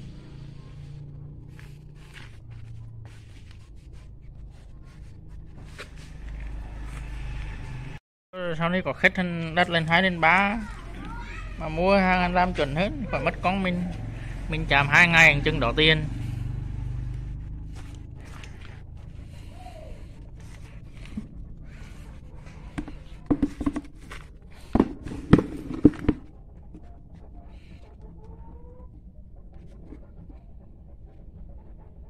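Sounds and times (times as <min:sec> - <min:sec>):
sharp knocks and clatter of mold shell: 0:22.8 - 0:26.3.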